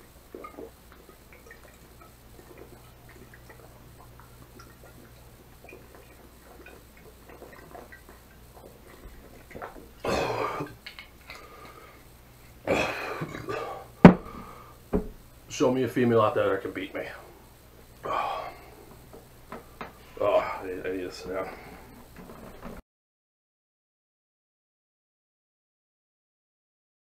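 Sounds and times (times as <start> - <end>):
man gulping from a bottle: 0.3 - 15.2, 18.0 - 22.8
rough breaths or coughs: 10.0 - 12.0, 12.6 - 14.8, 18.0 - 18.8
bottle knocking on a table: 14.0 - 14.3, 14.9 - 15.2.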